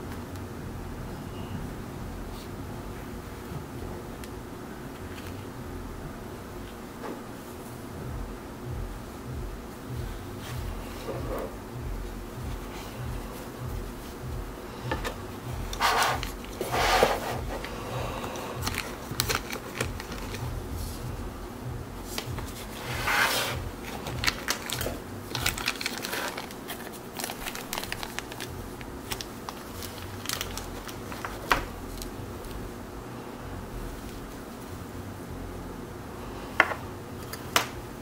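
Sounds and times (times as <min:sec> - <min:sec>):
gloved fingers rustling: 0:10.0 - 0:21.4.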